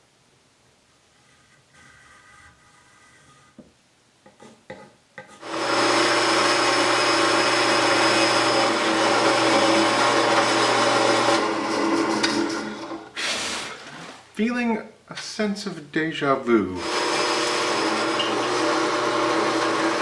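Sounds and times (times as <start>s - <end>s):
drill press boring into wood: 5.4s - 13.1s, 16.8s - 20.0s.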